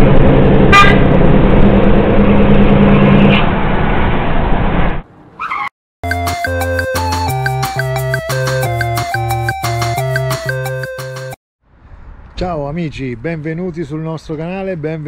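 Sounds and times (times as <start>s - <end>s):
music: 6.0s - 11.4s.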